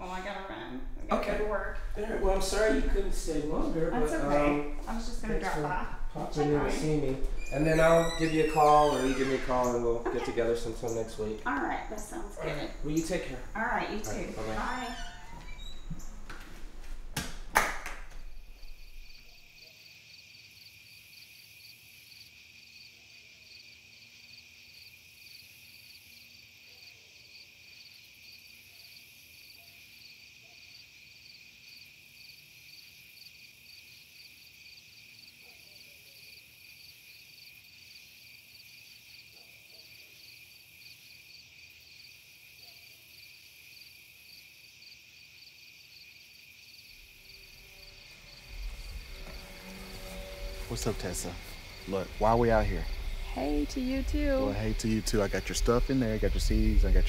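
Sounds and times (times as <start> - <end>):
night insects trilling: 0.0 - 16.4, 18.2 - 57.0
sharp knocks: 17.1 - 18.4.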